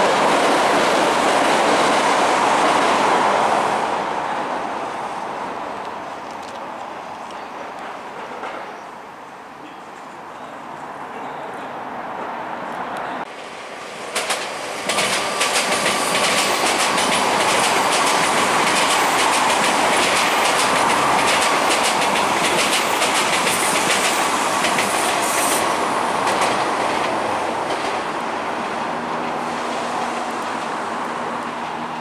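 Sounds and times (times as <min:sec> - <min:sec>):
faint steady train whine: 0:02.0 - 0:32.0
train wheels clacking over rail joints: 0:07.8 - 0:08.8, 0:14.1 - 0:28.2.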